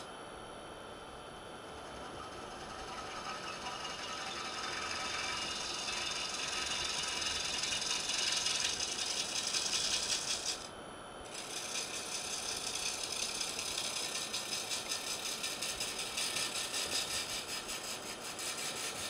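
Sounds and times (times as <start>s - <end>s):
gouge cutting wood on a lathe: 1.7s - 10.7s, 11.3s - 19.0s.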